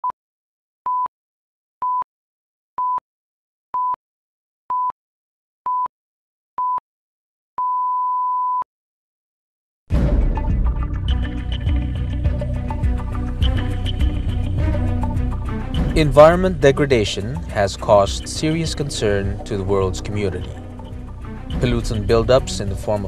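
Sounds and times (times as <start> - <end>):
short pure-tone beeps: 7.6 - 8.7
music: 9.9 - 23.0.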